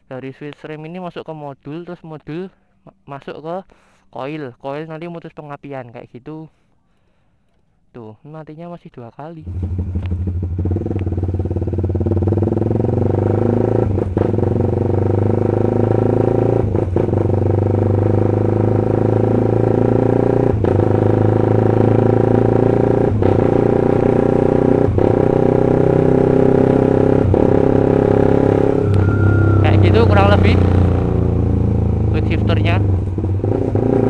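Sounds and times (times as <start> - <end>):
motorcycle engine running: 9.4 - 16.1, 20.6 - 34.0.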